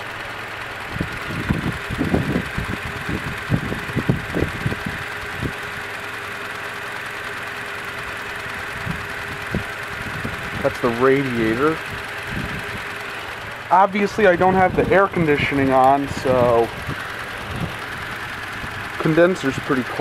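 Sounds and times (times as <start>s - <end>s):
pickup engine idling: 0.0s - 20.0s
low bumps and rustles: 16.1s - 19.2s.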